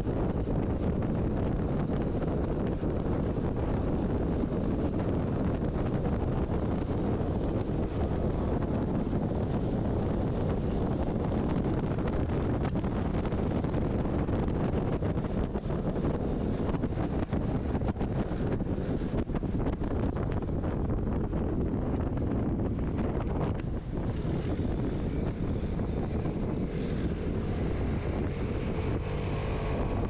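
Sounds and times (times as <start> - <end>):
wind buffeting microphone: 0.0 - 30.0
scooter engine running: 23.1 - 30.0.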